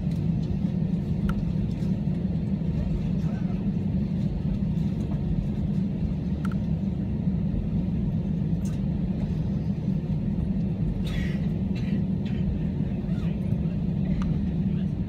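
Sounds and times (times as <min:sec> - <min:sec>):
jet engines rumbling at idle: 0:00.0 - 0:15.0.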